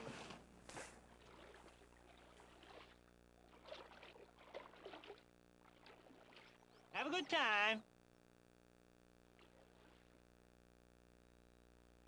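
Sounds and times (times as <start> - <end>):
low steady hum: 0.0 - 12.0
paddle splashing in water: 1.1 - 6.9.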